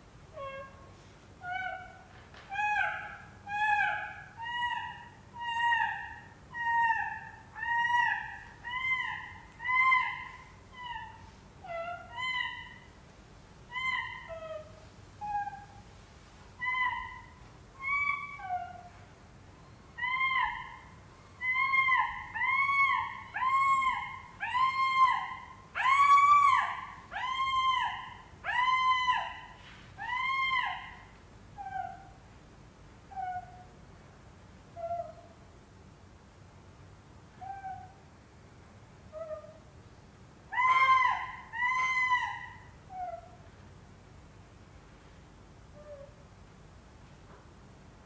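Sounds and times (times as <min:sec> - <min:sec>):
meow-like wailing calls: 0:20.0 - 0:31.0, 0:40.5 - 0:43.4.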